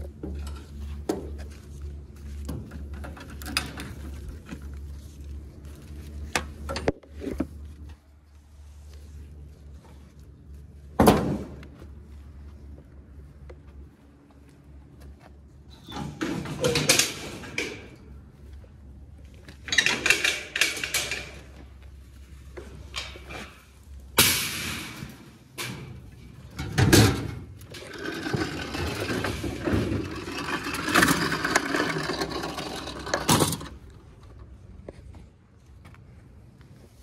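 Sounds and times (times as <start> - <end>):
metal gate rattling and scraping: 2.4 - 4.6, 15.7 - 18.1, 19.5 - 21.8, 22.6 - 34.3.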